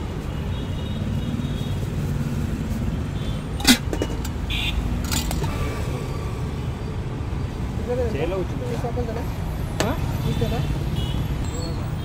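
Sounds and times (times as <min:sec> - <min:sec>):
road traffic rumble: 0:00.0 - 0:12.0
metal pots clinking: 0:03.6 - 0:04.4, 0:05.0 - 0:05.5.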